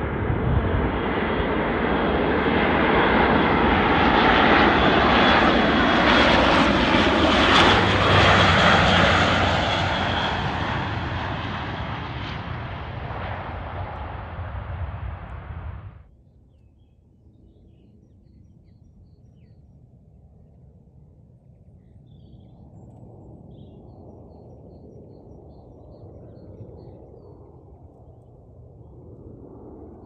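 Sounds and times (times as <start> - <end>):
distant aircraft rumble: 0.0 - 17.8.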